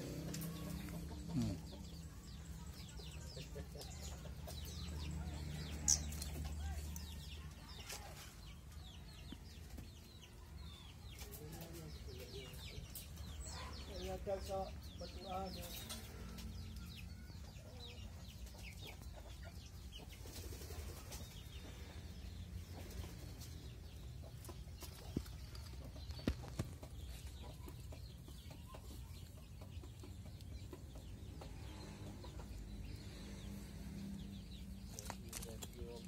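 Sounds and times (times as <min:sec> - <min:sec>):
chickens clucking: 0:00.0 - 0:36.0.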